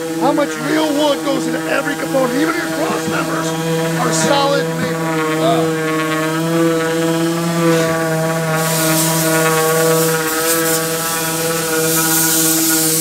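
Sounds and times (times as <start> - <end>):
air hiss: 0.0 - 13.0
orbital sander humming: 0.0 - 13.0.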